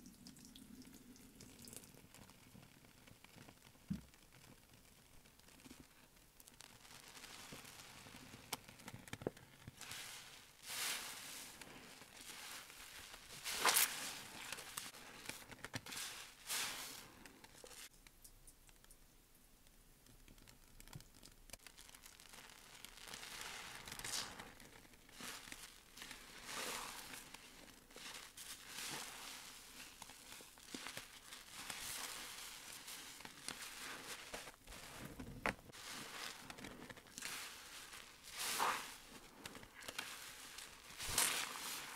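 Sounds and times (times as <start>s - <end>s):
wet sponge squishing: 0.2s - 17.9s, 20.3s - 41.9s.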